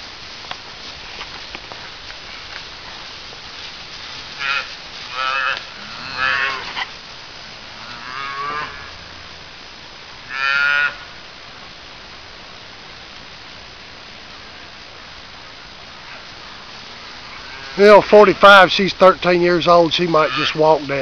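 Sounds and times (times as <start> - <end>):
cattle mooing: 4.4 - 6.9, 7.7 - 9.3, 10.3 - 11.1, 17.1 - 18.0, 20.2 - 20.6.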